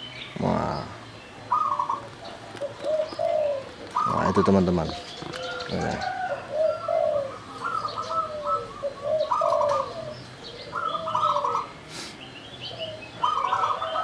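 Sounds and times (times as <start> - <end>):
small birds chirping: 0.0 - 14.0
dove cooing: 0.4 - 14.0.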